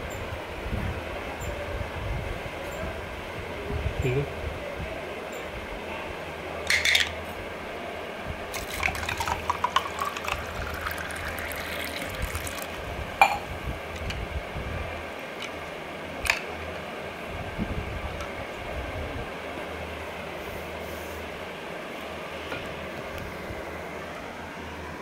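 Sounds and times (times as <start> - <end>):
water poured into glass: 8.5 - 13.4.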